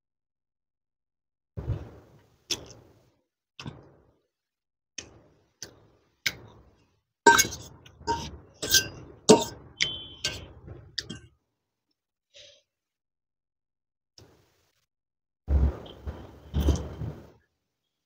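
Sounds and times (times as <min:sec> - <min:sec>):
utensil clinking against a dish: 0:07.3 - 0:09.6.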